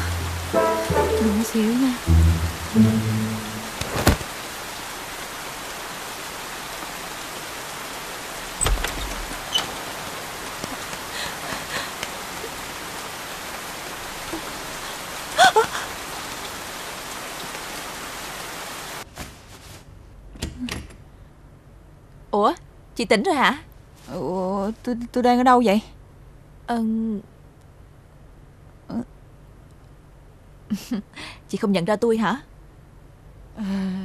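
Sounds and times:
heavy rain falling: 0.0 - 19.1.

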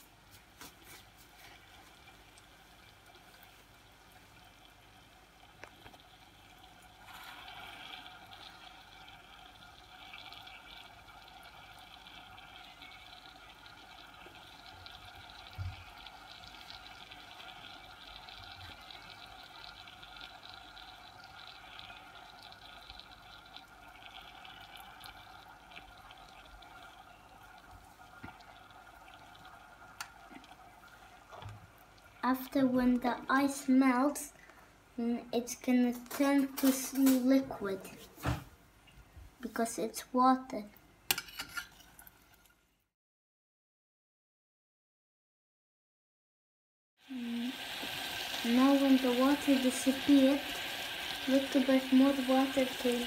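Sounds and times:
hot water hissing in pot: 5.5 - 31.3, 47.0 - 53.0.

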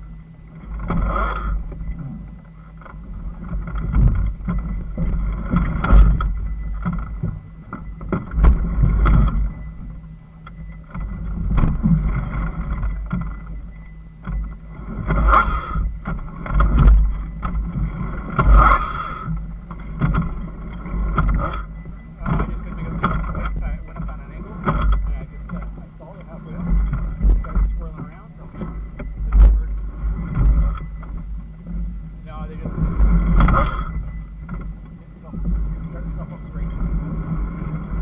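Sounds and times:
wind rumble on microphone: 0.0 - 38.0.

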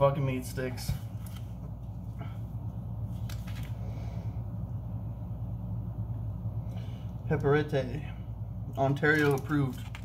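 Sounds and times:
low room hum: 0.0 - 10.0
rustles and clicks of items: 0.6 - 2.2, 3.1 - 4.0, 8.8 - 10.0.

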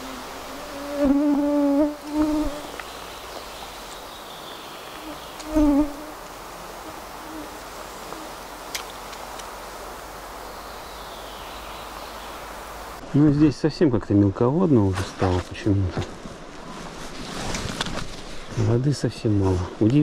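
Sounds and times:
stream rushing: 0.0 - 0.7
insect buzzing past: 0.0 - 13.0.

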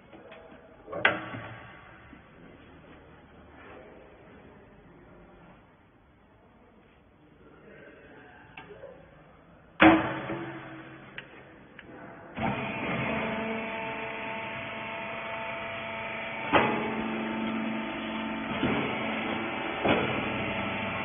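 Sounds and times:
motor and hydraulic pump humming: 12.3 - 21.0.

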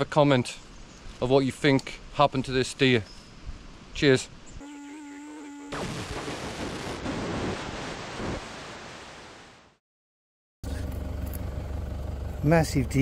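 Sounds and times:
loud even rushing noise: 5.8 - 9.5
low engine hum: 10.6 - 13.0.

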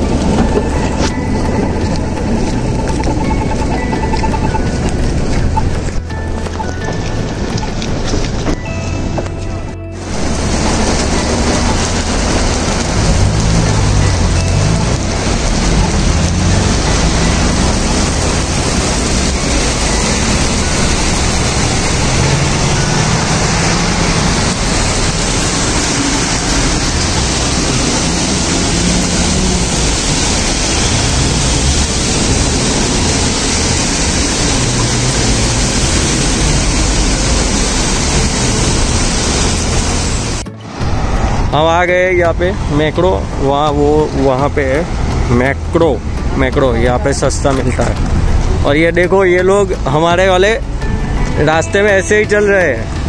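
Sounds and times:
heavy rain on pavement: 0.0 - 53.0
traffic on wet road: 0.0 - 53.0.

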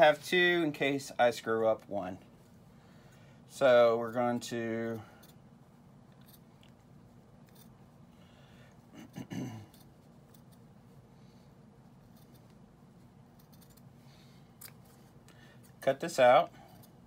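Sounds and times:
scissors snipping fabric: 9.7 - 10.7, 12.0 - 12.6, 13.3 - 13.9.

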